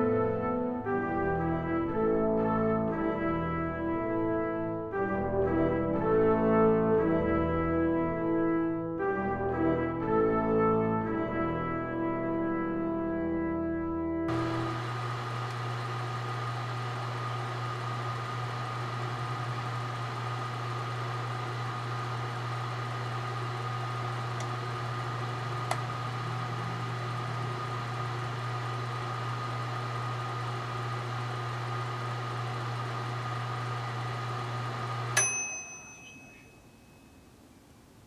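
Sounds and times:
microwave oven humming: 0:14.3 - 0:36.6
microwave click: 0:24.4 - 0:24.6.

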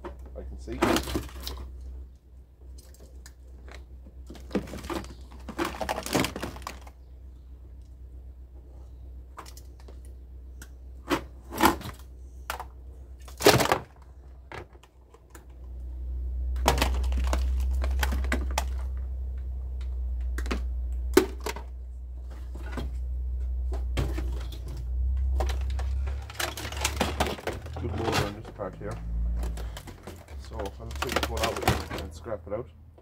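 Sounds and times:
plastic appliances clattering: 0:00.1 - 0:01.7, 0:03.7 - 0:06.9, 0:11.0 - 0:15.4, 0:16.6 - 0:19.0, 0:23.8 - 0:32.2.

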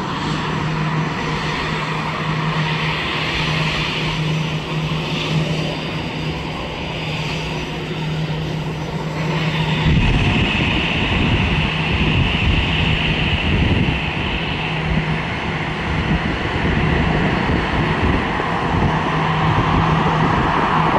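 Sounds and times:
jet engines humming and whining: 0:00.0 - 0:20.9.

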